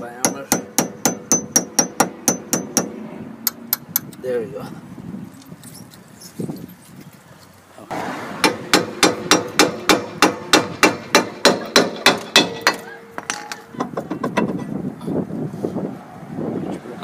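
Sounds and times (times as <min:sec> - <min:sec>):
hammer striking brake drum: 0:00.2 - 0:04.1, 0:08.4 - 0:14.7
metal drum ringing: 0:08.4 - 0:14.7.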